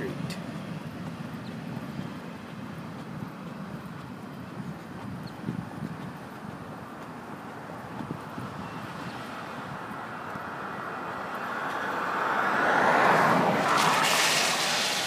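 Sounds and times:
tyres hissing on wet road: 6.9 - 15.0.

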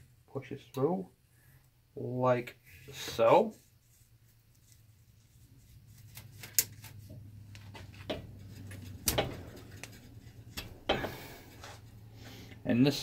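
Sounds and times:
low steady hum: 0.0 - 13.0
cloth brushing microphone: 2.7 - 6.1
sharp clicks and knocks: 7.6 - 11.8.

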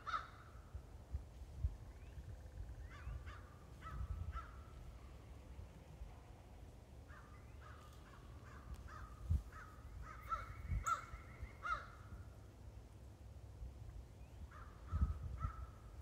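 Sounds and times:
crows cawing: 0.0 - 0.5, 7.1 - 12.2.

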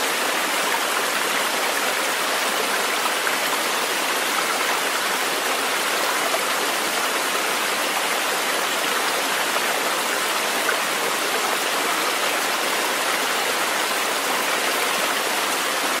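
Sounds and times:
stream water rushing: 0.0 - 16.0.

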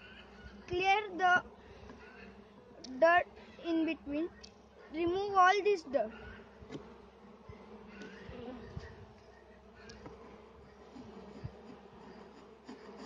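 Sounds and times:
bees buzzing: 0.0 - 13.0
hive tool clicking and scraping: 6.6 - 13.0.

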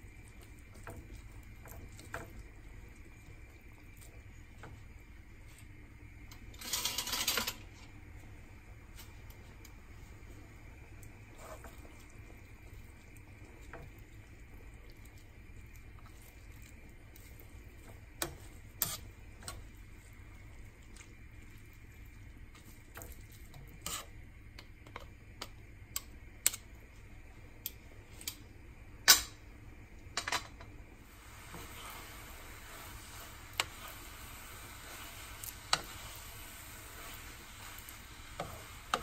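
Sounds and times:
low steady hum: 0.0 - 39.0
wooden spoon scraping frying pan: 11.3 - 12.0, 17.8 - 19.6, 22.6 - 24.2, 31.3 - 39.0.

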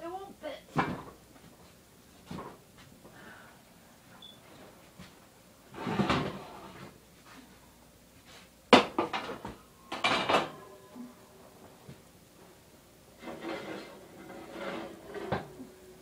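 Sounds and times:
metal clatter at oven: 8.8 - 10.6, 13.2 - 15.6.

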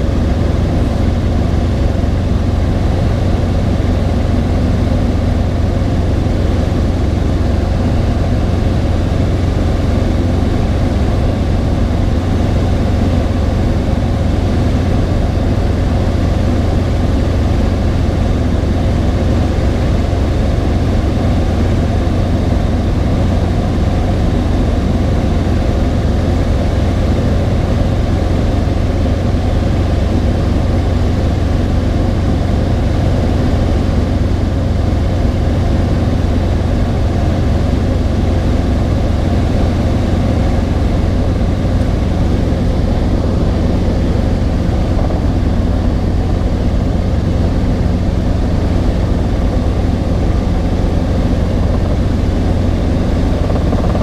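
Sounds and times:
airflow noise: 0.0 - 54.0
helicopter engine and rotor drone: 0.0 - 54.0.

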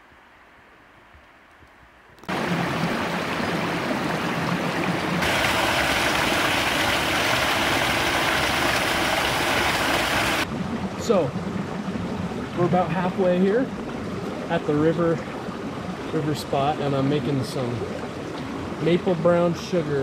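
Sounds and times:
river rushing: 2.3 - 10.5.

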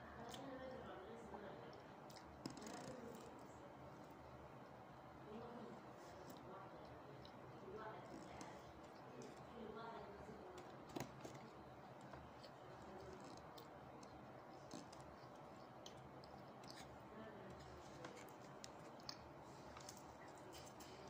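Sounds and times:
chewing and mouth clicks: 1.7 - 3.2, 6.3 - 9.5, 10.6 - 21.0.

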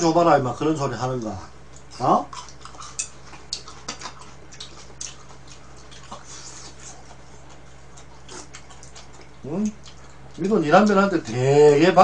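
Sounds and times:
steady low hum: 0.0 - 12.0
chewing smacks: 1.7 - 11.0.

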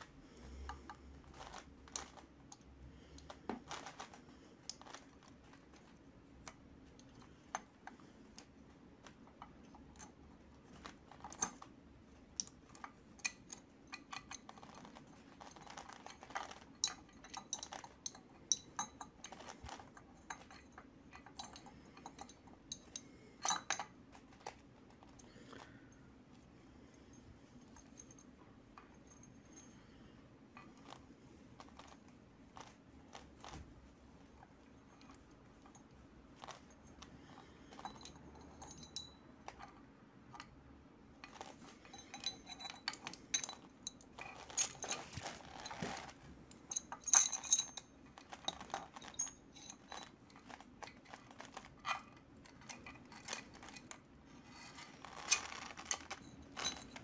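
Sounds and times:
metal chain clinking and rattling: 12.4 - 26.0, 34.7 - 40.4, 41.2 - 57.0.

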